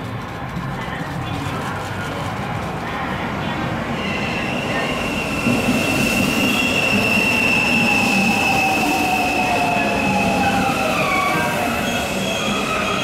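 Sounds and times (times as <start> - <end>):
train pulling in: 0.0 - 13.0
high-pitched brake squeal: 4.0 - 13.0.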